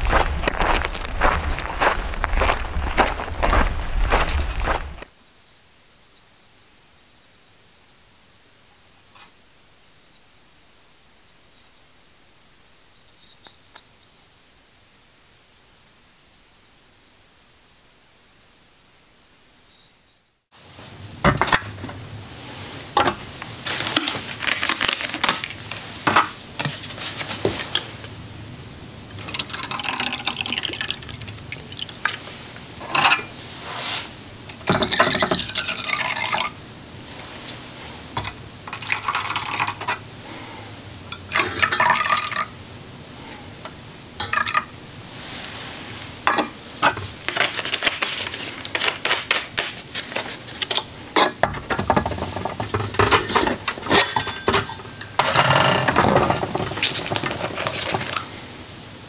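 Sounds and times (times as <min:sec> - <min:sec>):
liquid pouring: 0:29.3 - 0:32.3, 0:34.7 - 0:36.6, 0:41.3 - 0:42.5.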